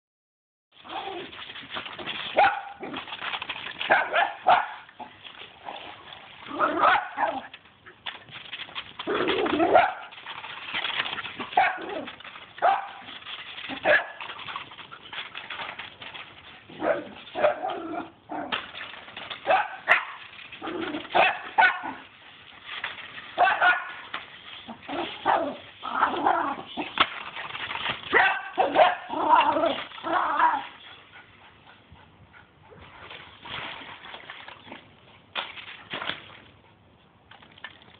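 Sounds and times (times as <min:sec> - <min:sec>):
small dogs barking: 0:02.4 - 0:03.0, 0:03.9 - 0:04.9, 0:06.5 - 0:07.5, 0:11.5 - 0:13.1, 0:21.1 - 0:22.0, 0:23.4 - 0:24.0, 0:28.1 - 0:30.6.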